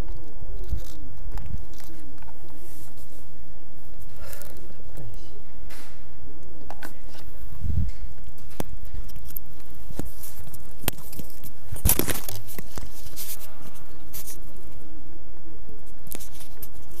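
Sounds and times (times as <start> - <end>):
rustling: 6.9 - 14.8.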